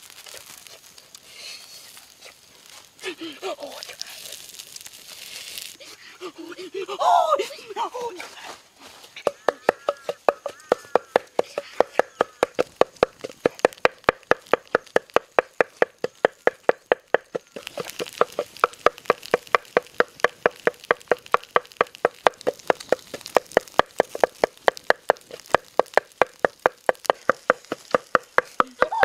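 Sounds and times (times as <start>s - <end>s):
faint hiss: 0.0s - 9.2s
wooden pestle pounding in mortar: 9.2s - 29.0s.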